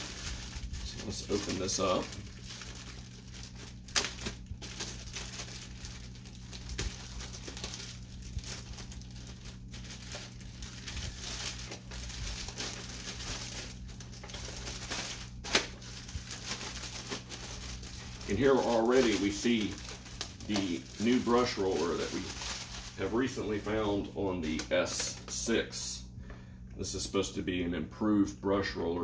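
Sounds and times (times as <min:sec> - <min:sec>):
plastic covering crinkling: 0:00.0 - 0:25.6.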